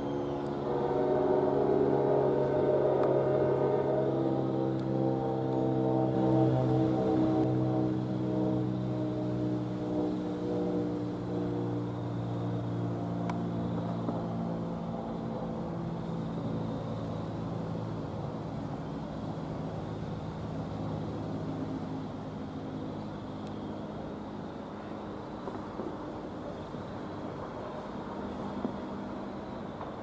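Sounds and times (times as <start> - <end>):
train rumbling on track: 0.0 - 12.5
diesel train engine hum: 0.0 - 30.0.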